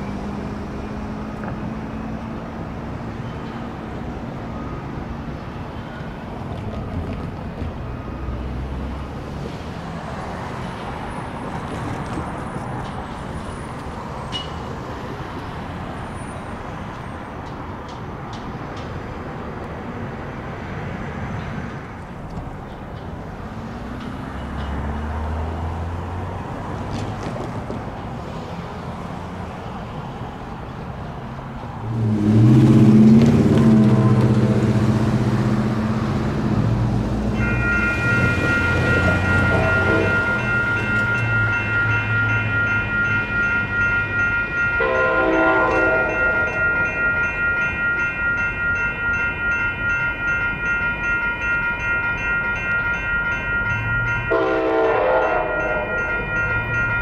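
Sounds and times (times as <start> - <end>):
freight train rumbling past: 0.0 - 57.0
road traffic: 0.0 - 57.0
train horn: 31.9 - 35.5, 37.4 - 41.9, 44.8 - 46.8, 54.3 - 56.2.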